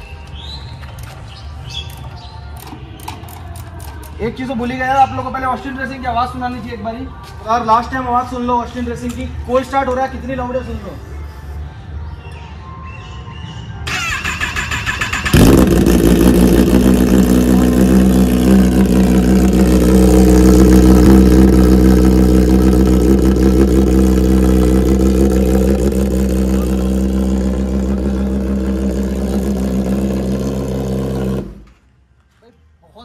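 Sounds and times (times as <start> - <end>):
motorcycle engine idling: 14.5 - 31.7.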